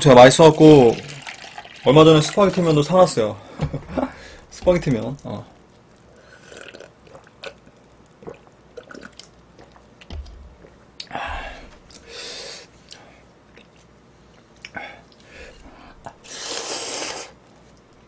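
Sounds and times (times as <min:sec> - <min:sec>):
breathy rushes: 0:03.4 - 0:04.5, 0:11.1 - 0:12.7, 0:14.8 - 0:17.4
man swallowing: 0:06.5 - 0:07.6, 0:08.2 - 0:13.0
glass set down knock: 0:10.1 - 0:10.7.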